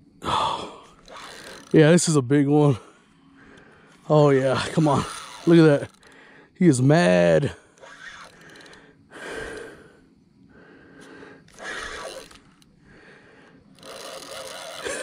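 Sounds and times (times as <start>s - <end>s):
man breathing hard: 0.2s - 1.0s, 6.0s - 6.6s, 8.4s - 12.2s, 12.8s - 13.7s.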